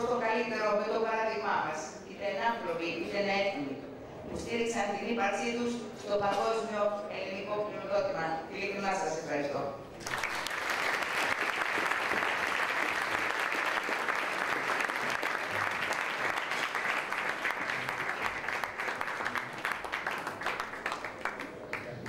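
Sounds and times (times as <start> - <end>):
audience applauding: 10.0 - 22.0.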